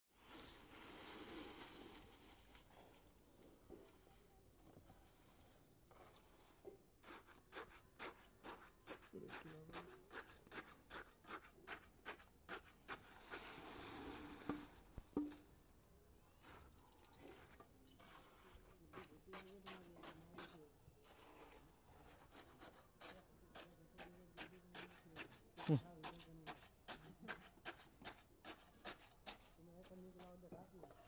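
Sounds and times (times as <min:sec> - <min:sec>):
hand tools scraping wet concrete: 0:07.0 - 0:14.8, 0:18.0 - 0:31.0.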